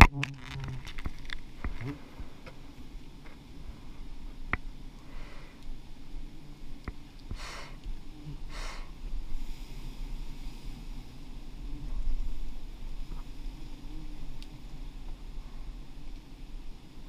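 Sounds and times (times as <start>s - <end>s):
microphone handling noise: 0.0s - 3.4s
wind rumble on microphone: 5.7s - 17.0s.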